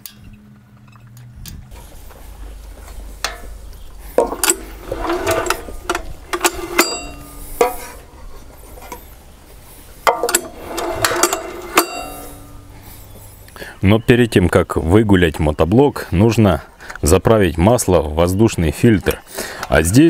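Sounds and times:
metal tool clinking on bolts: 4.2 - 7.9, 10.0 - 12.7.

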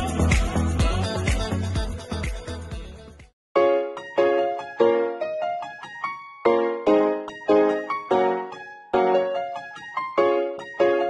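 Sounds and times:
piano chords: 3.6 - 11.0.

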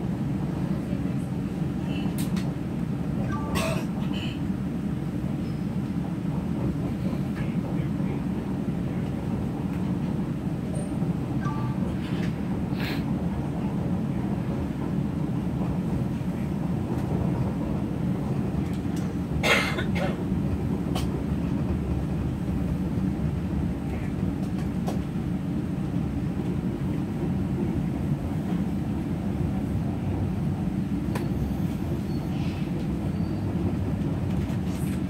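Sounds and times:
train interior rumble: 0.0 - 35.0.

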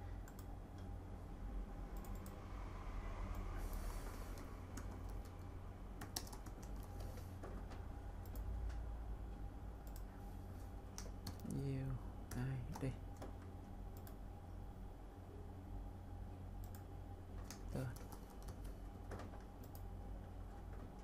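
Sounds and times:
steady low hum: 0.0 - 21.0
keyboard typing: 0.2 - 0.5, 2.0 - 2.4, 3.3 - 8.5, 9.8 - 10.1, 10.9 - 11.6, 16.6 - 21.0.

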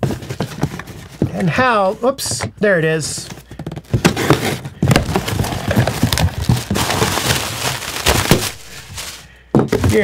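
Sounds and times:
plastic packaging crinkling: 4.2 - 10.0.

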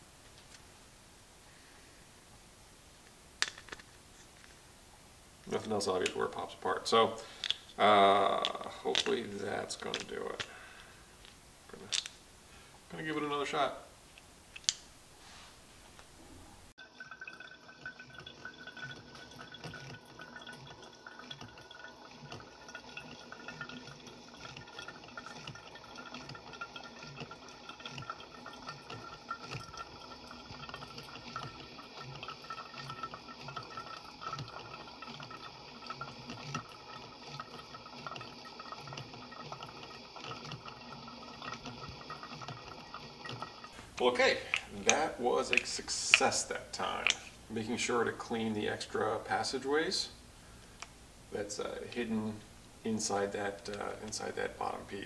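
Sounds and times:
coffee dripping into carafe: 5.4 - 10.9, 16.8 - 49.5, 51.6 - 55.0.

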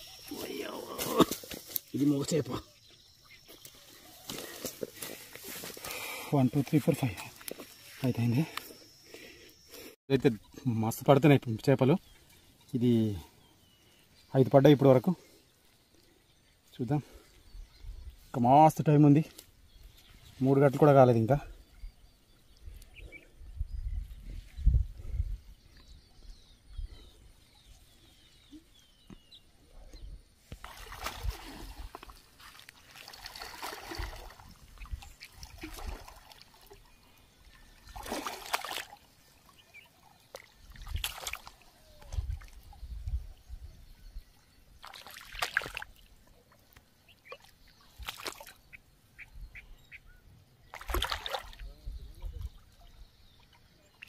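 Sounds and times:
faint bird chirps: 1.8 - 10.9, 33.9 - 54.0
water sloshing and splashing: 30.5 - 42.9, 44.8 - 46.7, 47.3 - 48.7, 50.7 - 54.0.

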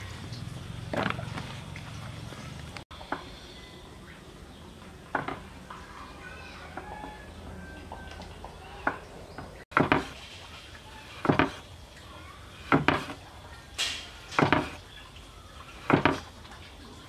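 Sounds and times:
knife chopping on wooden board: 12.7 - 13.2.

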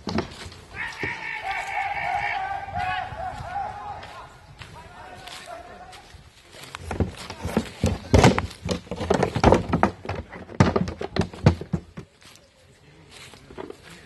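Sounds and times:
hooves knocking on wooden walls: 0.0 - 4.8, 6.7 - 12.3.

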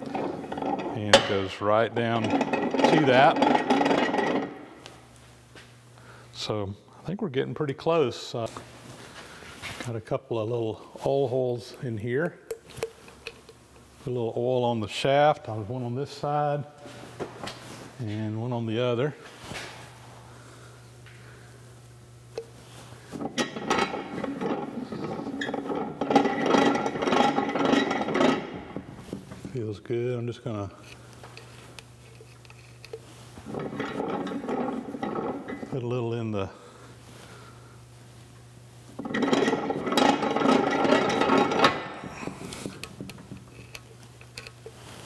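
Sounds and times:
metallic grinding of press ram: 0.0 - 4.8, 23.1 - 29.1, 32.0 - 35.8, 39.0 - 44.7
press gearing clattering: 23.2 - 28.9.

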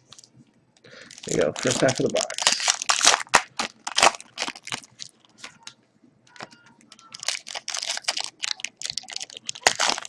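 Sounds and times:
foil packs crinkling and clicking: 1.0 - 5.1, 6.9 - 10.0.

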